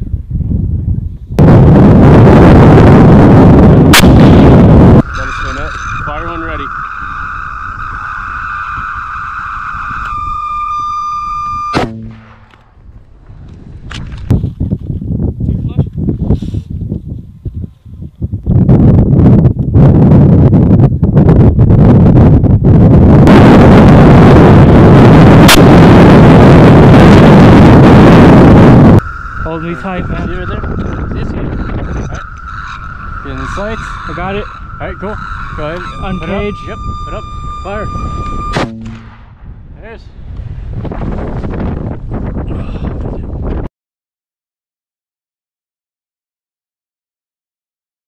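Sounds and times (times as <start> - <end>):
wind buffeting microphone: 0.0 - 43.7
buzzing seeker tone: 1.4 - 12.6, 23.0 - 39.4.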